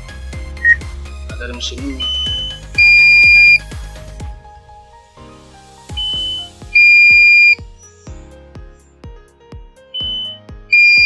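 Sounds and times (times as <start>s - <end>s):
background music with beat: 0.0s - 11.0s
electronic beeps: 2.0s - 3.6s, 6.0s - 7.6s, 10.0s - 11.0s.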